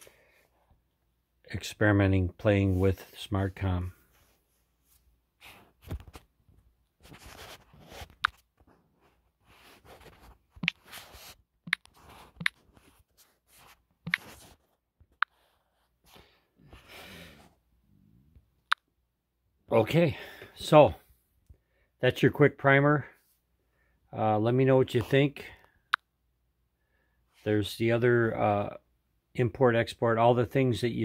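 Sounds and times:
soft rustling of phone handling: 4.0 - 15.9
fingertips tapping touchscreen: 10.0 - 13.0, 13.6 - 15.6.

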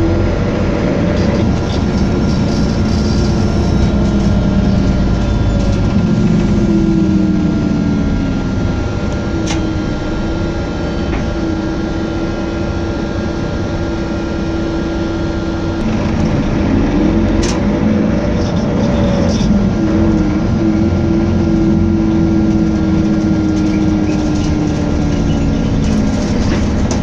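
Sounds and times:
bus diesel engine pulling: 0.0 - 27.0.

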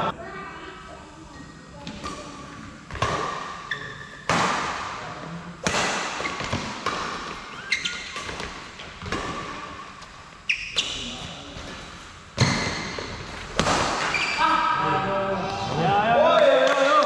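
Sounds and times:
shoes squeaking on court: 6.2 - 14.4.

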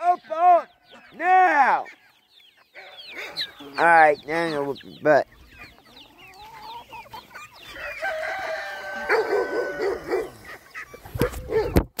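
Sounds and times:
chickens clucking: 0.0 - 12.0
rooster crowing: 7.7 - 10.4.

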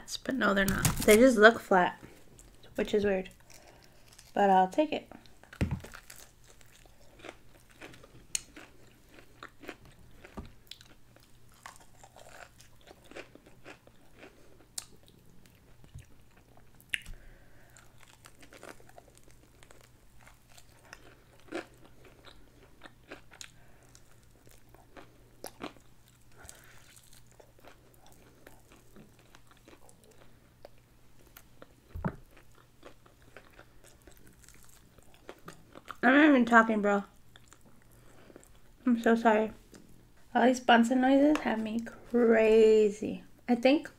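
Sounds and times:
person crunching fried chicken: 5.2 - 36.0.

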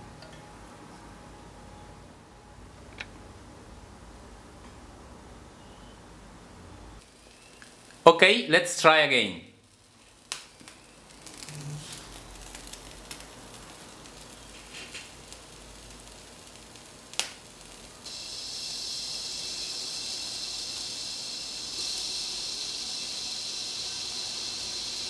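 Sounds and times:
steam jet hissing: 9.8 - 16.9, 18.0 - 25.0.

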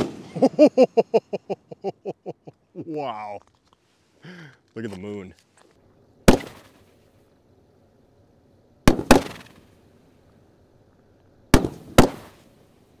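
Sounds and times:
firework booms with echo: 0.0 - 0.4, 6.2 - 6.8, 8.8 - 9.7, 11.5 - 12.4.

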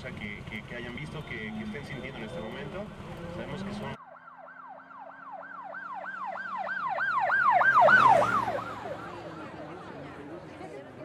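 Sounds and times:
emergency siren yelping: 3.4 - 10.3.

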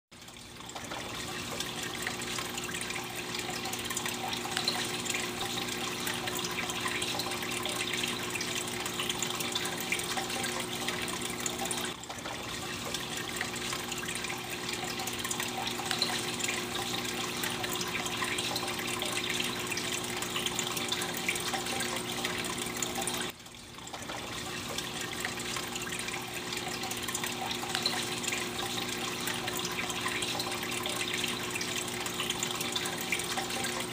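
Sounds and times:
aquarium filter water trickling: 0.1 - 33.9
filter pump humming: 0.2 - 33.9.

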